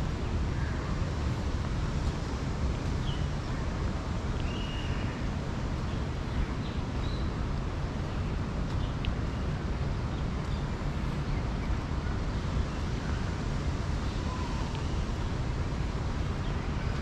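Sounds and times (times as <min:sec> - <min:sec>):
low rumble of outdoor background noise: 0:00.0 - 0:17.0.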